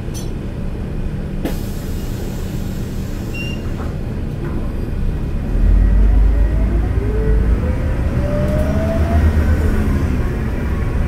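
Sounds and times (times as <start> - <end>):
bus engine rumbling: 0.0 - 11.0
rising engine whine: 4.9 - 11.0.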